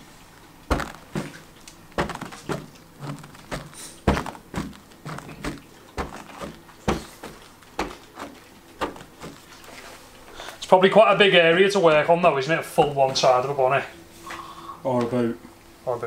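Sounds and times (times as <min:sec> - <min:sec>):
uneven polisher knocks: 0:00.7 - 0:09.5.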